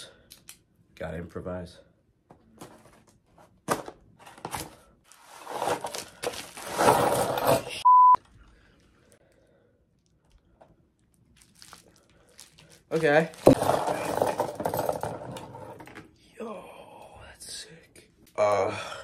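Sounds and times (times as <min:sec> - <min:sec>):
bubble wrap crinkling: 0:05.1 - 0:06.9, 0:11.0 - 0:13.6
short loud beep: 0:07.8 - 0:08.2.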